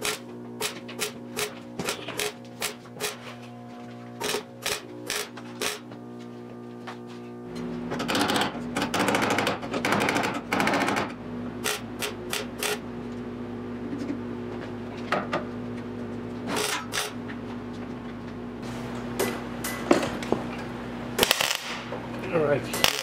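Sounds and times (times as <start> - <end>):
welder crackling: 0.0 - 6.2, 21.2 - 23.0
welder hum: 0.0 - 17.7, 18.5 - 23.0
sharp tack weld bursts: 4.2 - 5.8, 11.6 - 12.8, 21.2 - 21.9, 22.8 - 23.0.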